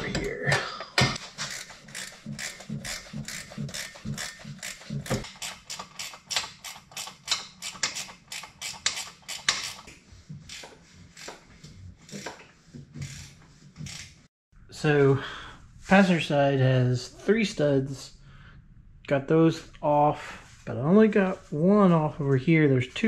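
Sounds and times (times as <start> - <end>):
ratchet wrench clicking: 1.4 - 9.9.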